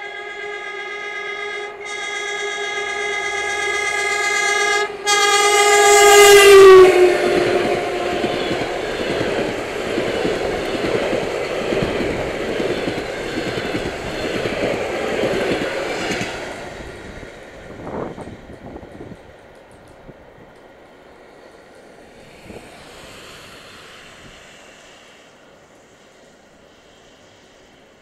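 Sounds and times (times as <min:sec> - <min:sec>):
train horn: 0:00.0 - 0:18.4
train wheels rolling on rails: 0:00.0 - 0:28.0.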